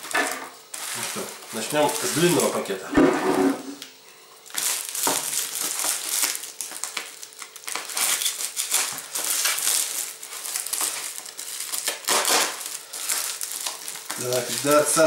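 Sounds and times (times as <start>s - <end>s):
plastic wrapping crinkling: 0.0s - 2.8s, 4.4s - 15.0s.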